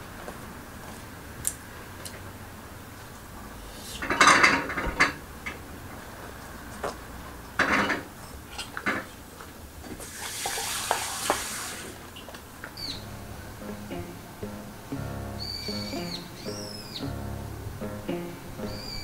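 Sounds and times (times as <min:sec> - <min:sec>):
dishes clattering on a table: 0:04.0 - 0:05.6, 0:07.6 - 0:09.1.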